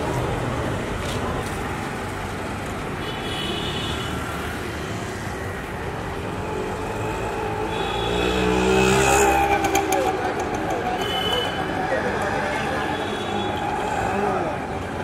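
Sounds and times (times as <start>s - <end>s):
traffic rumble: 0.0s - 15.0s.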